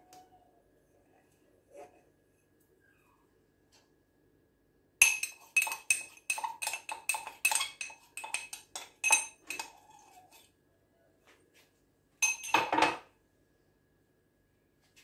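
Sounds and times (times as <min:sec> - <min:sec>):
glass clinking: 0:05.0 - 0:09.8, 0:12.2 - 0:13.0.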